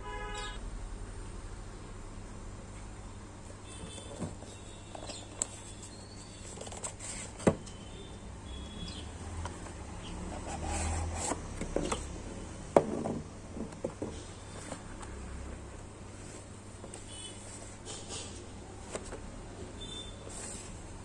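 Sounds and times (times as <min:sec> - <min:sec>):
cardboard box sliding and rubbing: 0:10.3 - 0:11.5, 0:20.3 - 0:20.9.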